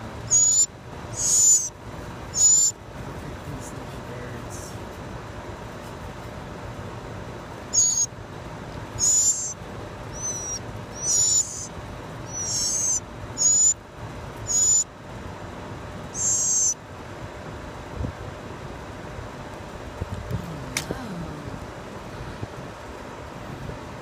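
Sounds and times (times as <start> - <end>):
bird nestlings begging calls: 0.2 - 2.8, 7.7 - 8.2, 8.9 - 13.8, 14.4 - 14.9, 16.0 - 16.8.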